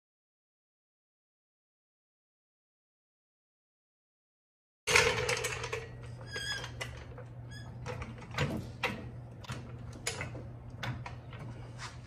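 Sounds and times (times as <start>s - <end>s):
short high squeaks: 6.2s - 6.8s.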